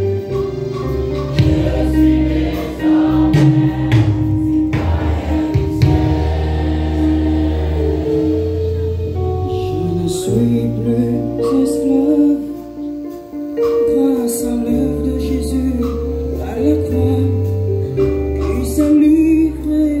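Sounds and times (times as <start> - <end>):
amplified accompaniment: 0.0 - 20.0
choir singing: 1.3 - 9.2.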